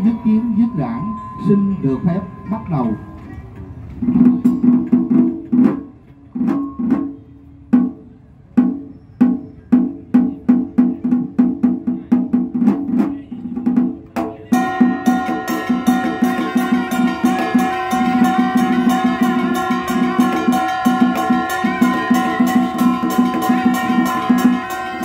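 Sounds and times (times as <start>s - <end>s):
drum strokes: 0.0s - 25.0s
wind instrument held notes: 14.6s - 25.0s.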